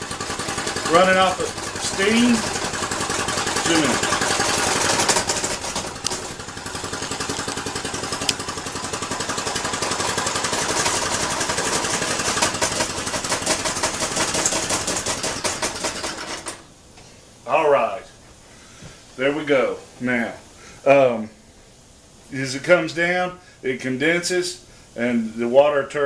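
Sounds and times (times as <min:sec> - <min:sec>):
steam engine chuffing: 0:00.0 - 0:16.6
sharp clicks: 0:06.0 - 0:06.3.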